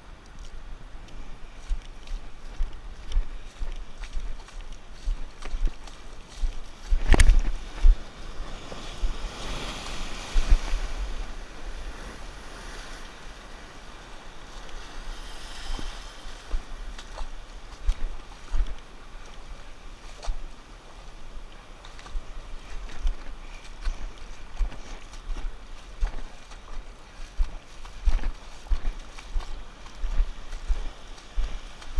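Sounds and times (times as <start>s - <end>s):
wind buffeting microphone: 0.5s - 31.9s
surf washing over rocks: 6.1s - 26.0s.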